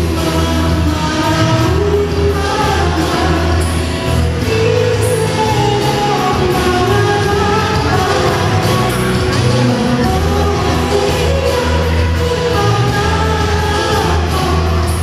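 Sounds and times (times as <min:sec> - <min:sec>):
song over sound system: 0:00.0 - 0:15.0.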